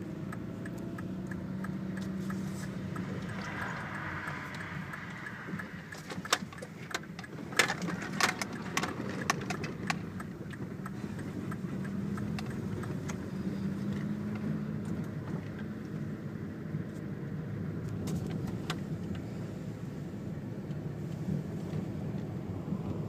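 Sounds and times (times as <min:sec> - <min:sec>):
low engine and road rumble: 0:00.0 - 0:23.0
car rattles and knocks: 0:05.9 - 0:10.6.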